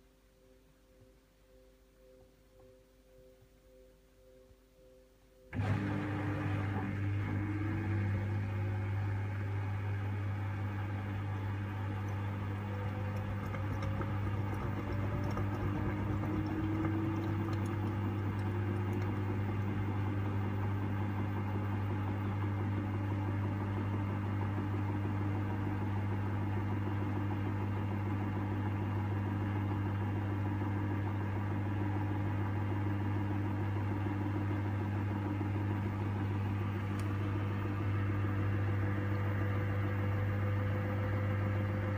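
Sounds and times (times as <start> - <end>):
washing machine spinning: 5.5 - 41.9
constant low hum: 6.4 - 22.5.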